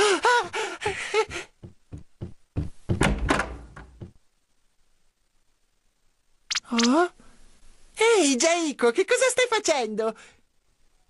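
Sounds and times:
heavy footsteps on wooden stairs: 1.3 - 4.2
door banging open: 2.9 - 3.8.

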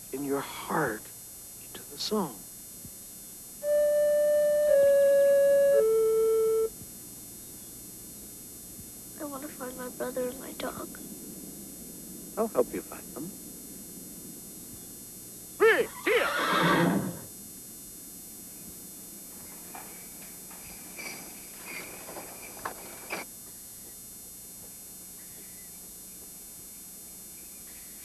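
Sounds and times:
horse whinnying: 15.8 - 17.3.

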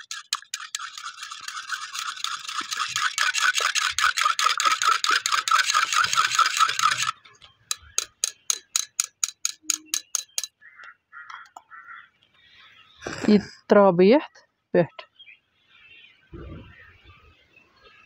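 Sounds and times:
whisk clicking in clay cup: 0.0 - 10.5.

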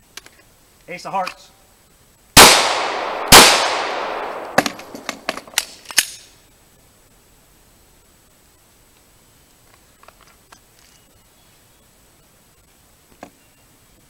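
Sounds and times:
handgun shots with echo: 2.4 - 6.2.

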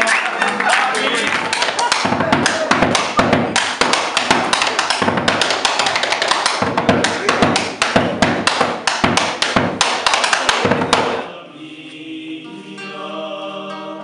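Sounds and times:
drum beaten with sticks: 1.2 - 11.3.

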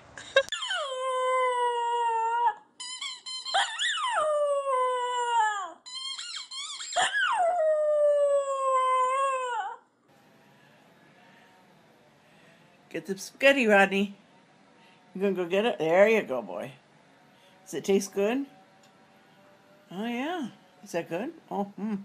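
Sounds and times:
dog howling: 0.5 - 2.7, 3.4 - 9.8
dog yipping: 0.5 - 9.8.

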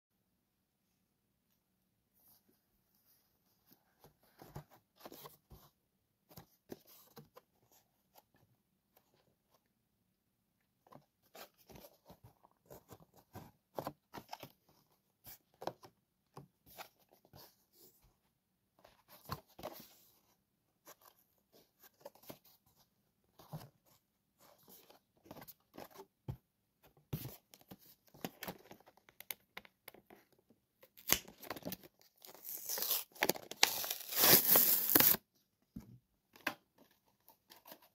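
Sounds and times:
plastic packaging crinkling: 32.4 - 35.2.

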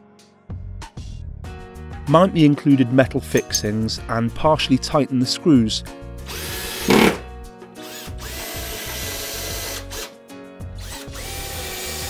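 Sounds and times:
cordless drill driving screws: 6.3 - 7.2, 7.8 - 10.1, 10.8 - 12.0.

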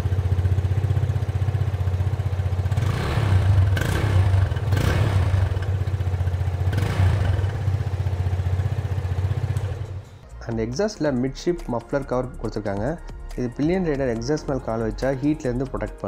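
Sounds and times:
motorcycle engine idling and revving: 0.0 - 11.2.

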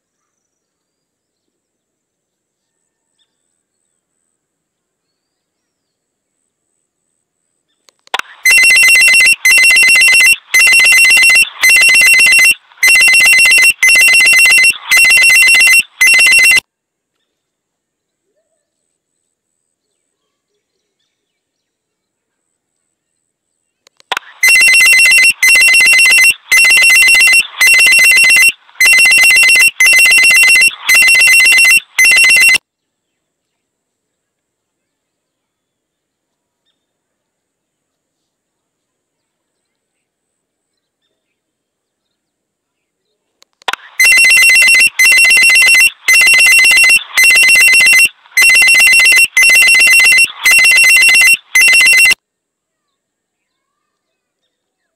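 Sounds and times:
electronic ringing tone: 8.4 - 16.6, 24.1 - 32.6, 43.8 - 52.2.

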